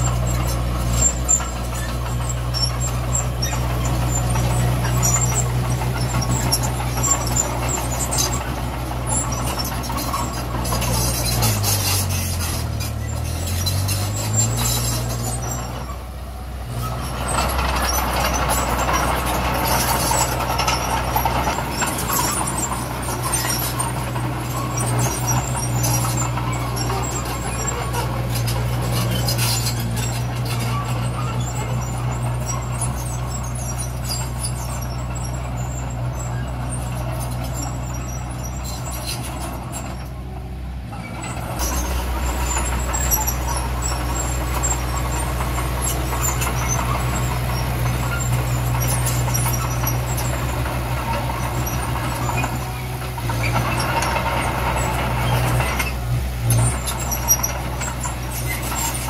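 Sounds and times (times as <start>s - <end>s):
diesel machinery engine hum: 0.0s - 59.0s
metallic clanks and squeaks: 0.0s - 59.0s.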